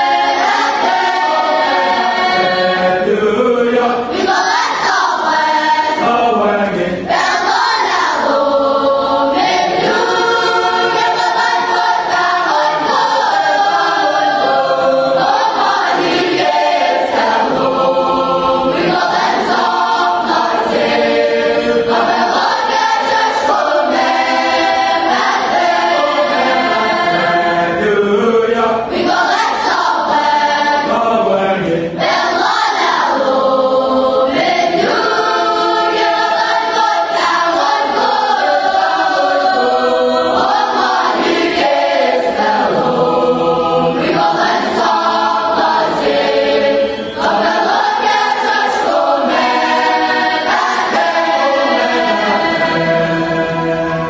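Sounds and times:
girls' choir singing a hymn: 0.0 - 54.0.

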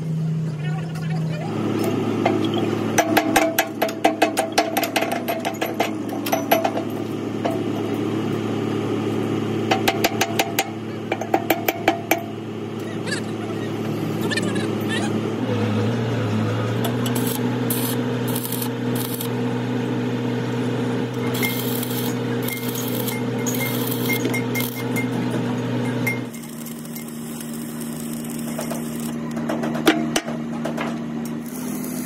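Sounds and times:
electrical hum: 6.0 - 32.0
welding arc crackling: 16.7 - 19.6, 21.0 - 25.3, 26.0 - 29.3, 31.3 - 32.0.

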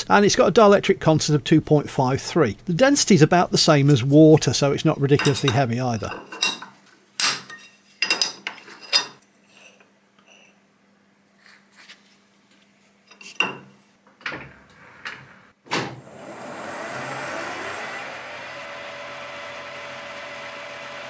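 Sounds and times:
lathe spindle running: 16.1 - 21.0.

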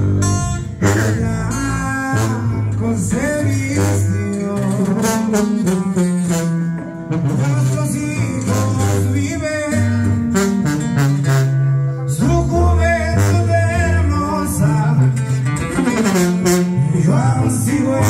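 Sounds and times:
plucked guitars: 0.0 - 18.0
tuba bass line: 0.0 - 18.0
person singing: 12.0 - 15.4, 16.7 - 18.0.

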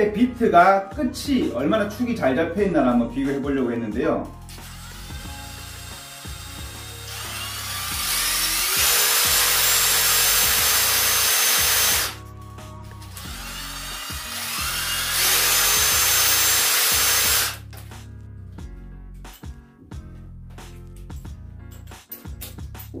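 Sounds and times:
impact driver motors whining: 4.6 - 12.2, 13.1 - 17.6.

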